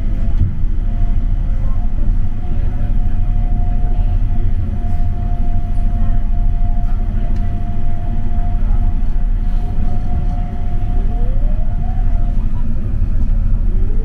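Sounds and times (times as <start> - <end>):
rail car low rumble: 0.0 - 14.0
steady whine: 0.0 - 14.0.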